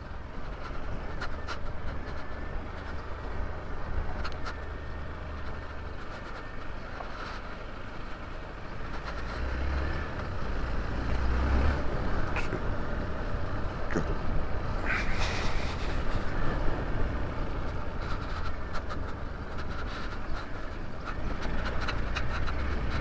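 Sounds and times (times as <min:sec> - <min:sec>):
motorcycle engine rumbling: 0:11.8 - 0:23.0.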